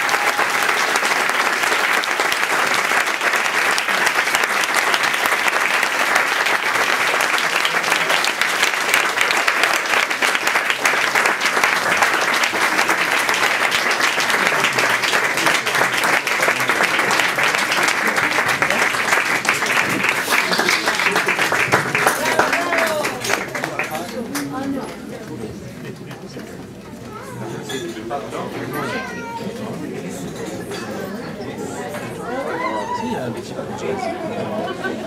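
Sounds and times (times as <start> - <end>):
audience applauding: 0.0 - 25.1.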